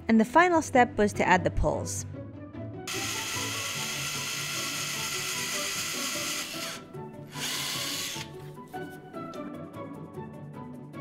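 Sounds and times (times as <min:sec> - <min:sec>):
cordless drill boring into wood: 0:02.9 - 0:08.4.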